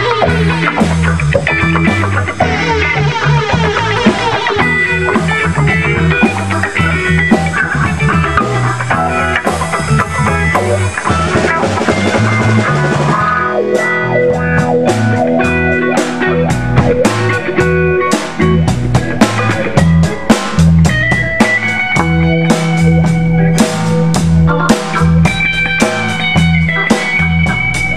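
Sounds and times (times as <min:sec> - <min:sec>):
live funk band: 0:00.0 - 0:27.9
sharp drum strikes: 0:16.8 - 0:23.0.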